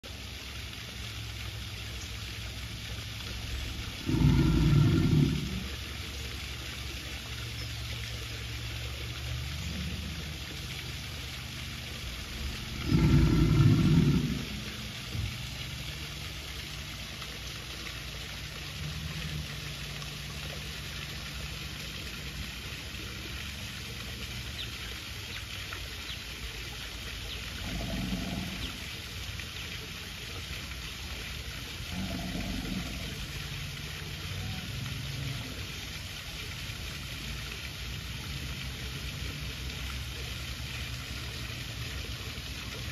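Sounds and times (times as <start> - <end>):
alligators bellowing: 3.5 - 7.3, 8.2 - 24.2, 27.3 - 29.8, 31.2 - 35.8.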